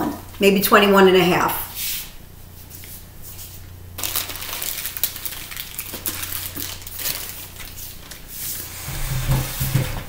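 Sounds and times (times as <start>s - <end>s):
plastic wrap crinkling: 4.0s - 9.8s
steady low hum: 6.1s - 10.0s.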